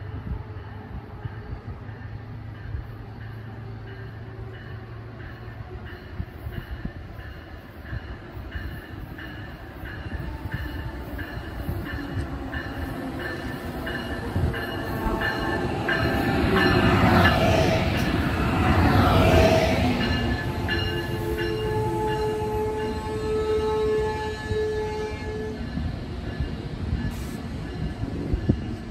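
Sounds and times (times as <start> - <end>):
train rumbling past: 0.0 - 28.9
train brake squeal: 26.9 - 27.8.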